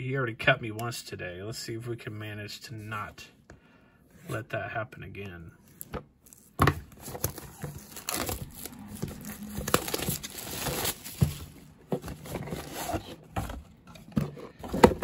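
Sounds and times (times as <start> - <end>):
plastic shrink-wrap crinkling and tearing: 6.2 - 11.8
cardboard box knocks and clicks: 9.6 - 15.0.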